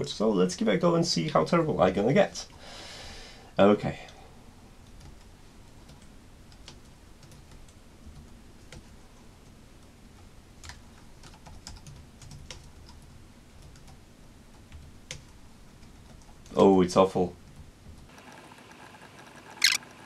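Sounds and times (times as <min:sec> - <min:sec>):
faint keyboard typing: 0:04.8 - 0:16.7, 0:17.4 - 0:20.0.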